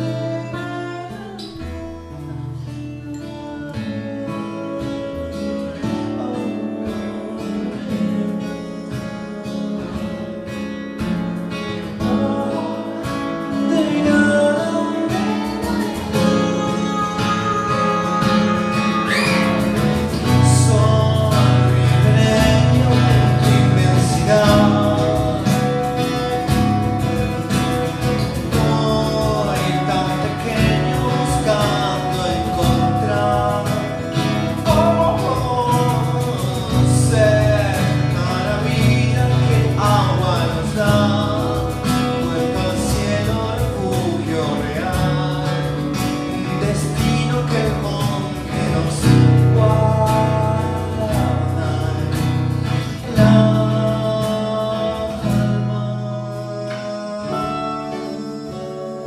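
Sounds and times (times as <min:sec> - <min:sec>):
acoustic guitars: 0:00.0 - 0:59.0
cajon beat: 0:00.0 - 0:59.0
man singing: 0:00.0 - 0:59.0.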